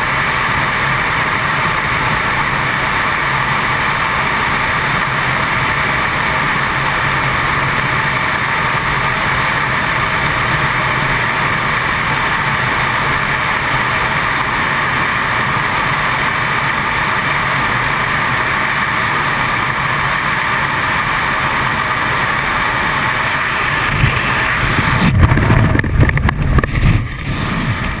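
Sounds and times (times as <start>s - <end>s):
parachute buffeting and flapping: 23.0s - 28.0s
wind rushing over microphone: 23.2s - 28.0s.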